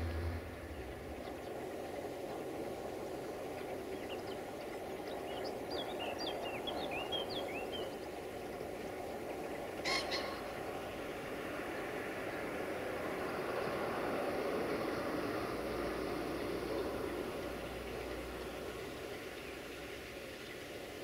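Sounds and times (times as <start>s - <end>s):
birds chirping: 0.0s - 2.0s, 3.4s - 11.3s
diesel locomotive idling: 0.0s - 21.0s.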